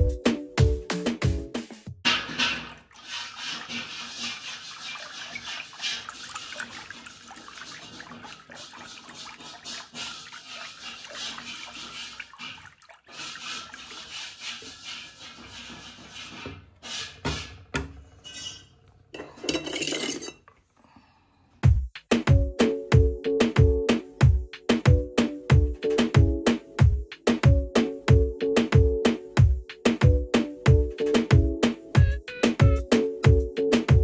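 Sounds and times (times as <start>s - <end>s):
wooden churner swishing in batter: 2.1s - 18.2s.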